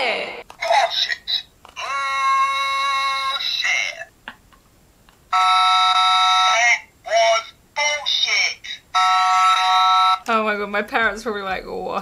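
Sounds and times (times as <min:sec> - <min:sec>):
electronic buzzer tone: 0:05.3 - 0:06.7, 0:09.0 - 0:10.3.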